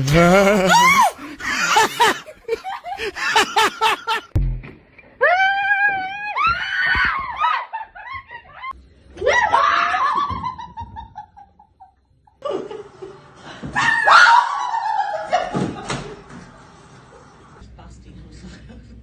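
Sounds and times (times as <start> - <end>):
women laughing: 0.3 - 4.4, 7.4 - 8.8, 9.7 - 16.4
women screaming: 0.5 - 1.9, 5.2 - 10.4, 13.8 - 15.5.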